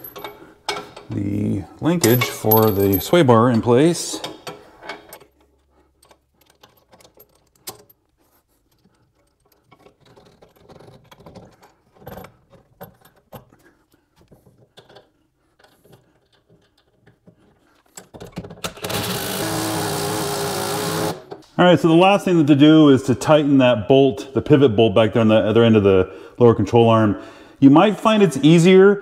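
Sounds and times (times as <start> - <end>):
light metallic clicks and clinks: 2.0 - 5.3.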